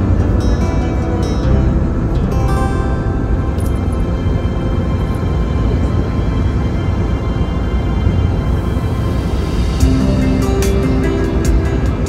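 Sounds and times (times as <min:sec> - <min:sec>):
steady low rumble: 0:00.0 - 0:12.0
sustained low music notes: 0:00.0 - 0:12.0
drum and cymbal hits: 0:09.4 - 0:12.0.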